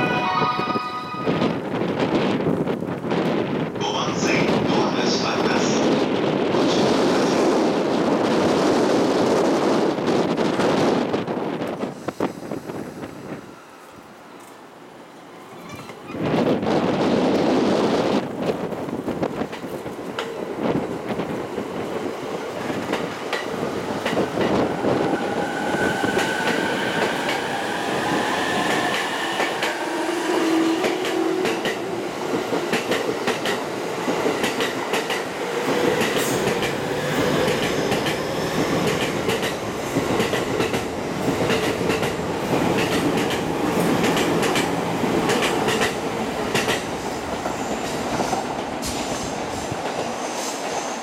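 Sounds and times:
train wheels clicking over rail joints: 30.8 - 50.8.

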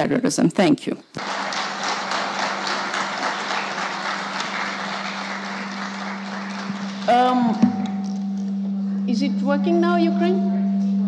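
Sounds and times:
crowd applauding: 1.2 - 7.6
low hum: 3.9 - 11.0.

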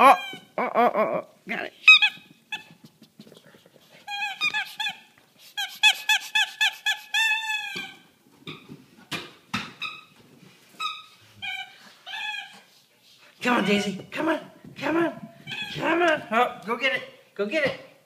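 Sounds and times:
squeaky dog toy squeaking: 0.0 - 0.6, 1.8 - 2.8, 4.0 - 8.1, 10.8 - 12.7, 13.4 - 14.0, 15.4 - 16.1.

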